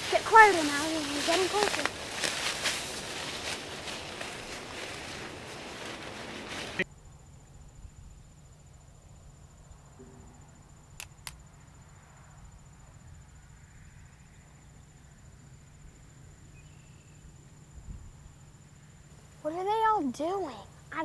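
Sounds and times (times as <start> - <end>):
sharp clicks: 11.0 - 11.4.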